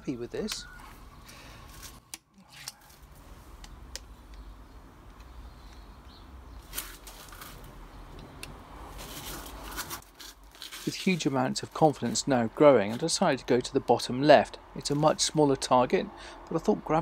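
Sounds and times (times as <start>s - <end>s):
clothing rustling: 8.9s - 11.4s.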